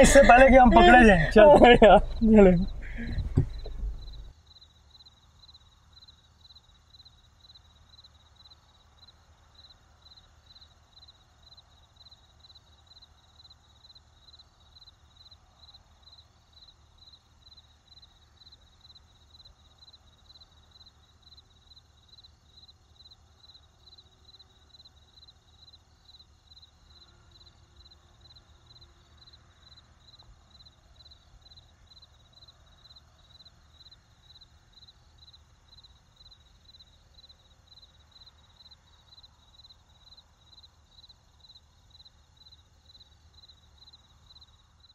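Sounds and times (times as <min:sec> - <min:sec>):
low background rumble: 0:00.0 - 0:04.3
crickets chirping: 0:00.0 - 0:44.9.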